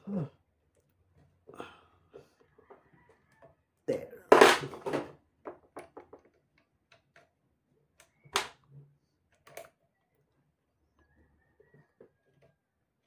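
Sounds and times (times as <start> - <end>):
gun parts clicking and knocking: 4.4 - 7.4.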